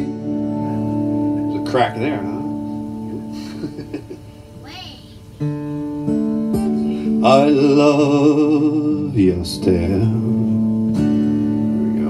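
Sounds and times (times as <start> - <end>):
acoustic guitar strumming: 0.0 - 12.0
man singing: 7.1 - 10.7.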